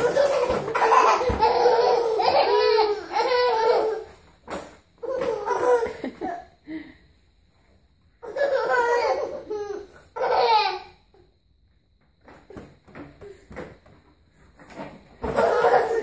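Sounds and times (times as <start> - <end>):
babies laughing: 0.0 - 4.1, 5.0 - 6.4, 8.2 - 10.9, 15.2 - 16.0.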